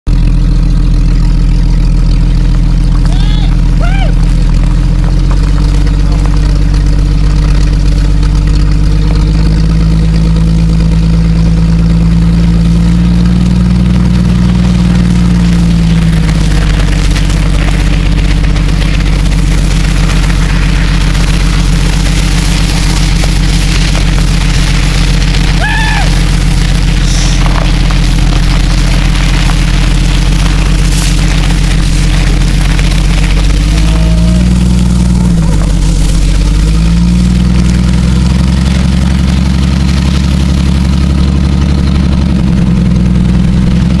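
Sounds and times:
car engine running: 0.0 - 44.0.

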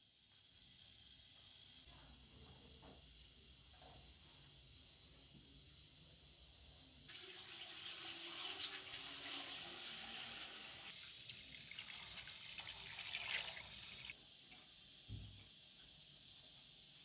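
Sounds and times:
water pouring into a pot: 7.1 - 14.2.

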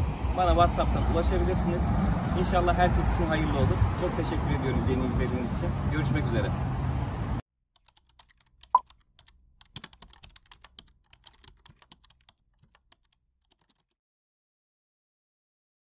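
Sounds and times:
keyboard typing clicks: 7.8 - 13.9.

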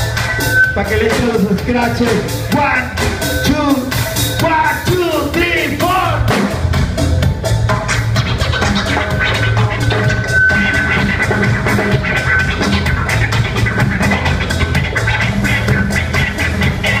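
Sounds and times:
drum kit beat: 0.0 - 17.0
heavy bass: 0.0 - 17.0
sliding pitched line: 7.8 - 17.0.

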